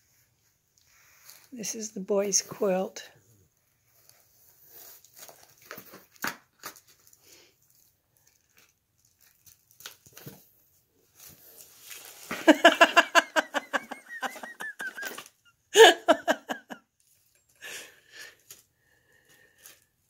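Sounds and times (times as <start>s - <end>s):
cardboard and paper rustling: 3.8s - 15.3s.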